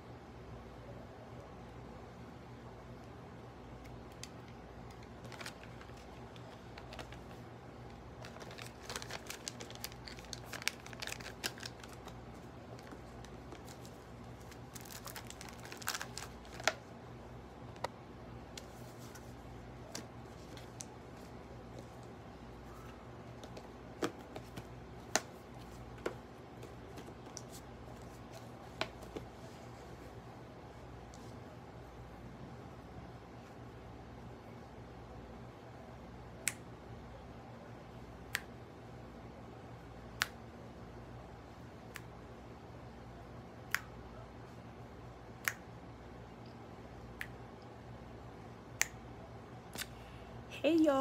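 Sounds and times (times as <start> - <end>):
steady low hum: 0.0 - 51.0
finger snaps: 36.4 - 36.7, 38.3 - 38.5, 40.2 - 40.4, 41.9 - 42.1, 43.6 - 43.9, 45.4 - 45.7, 47.2 - 47.4, 48.8 - 49.0, 49.7 - 50.0.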